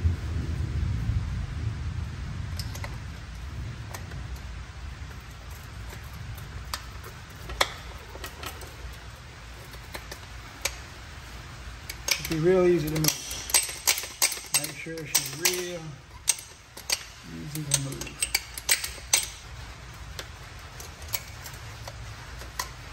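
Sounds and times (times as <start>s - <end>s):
low rumble: 0.0s - 22.9s
wrench clicking on metal: 2.6s - 3.0s, 5.1s - 10.9s, 11.8s - 19.5s, 20.1s - 22.8s.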